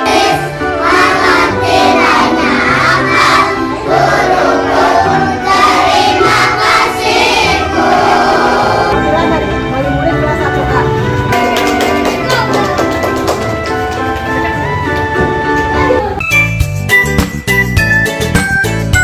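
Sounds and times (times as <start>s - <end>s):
children singing in unison: 0.0s - 9.0s
music track playing: 0.0s - 19.0s.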